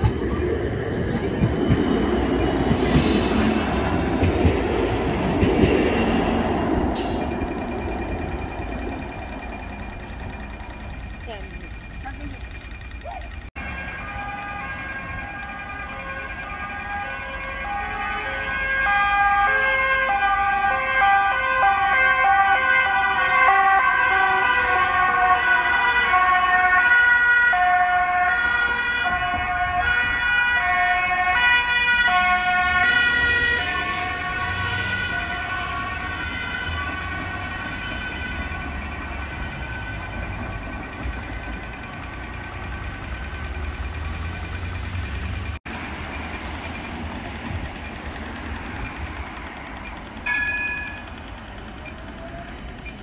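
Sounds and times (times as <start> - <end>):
emergency vehicle siren: 0.0 - 53.0
low traffic rumble: 22.8 - 53.0.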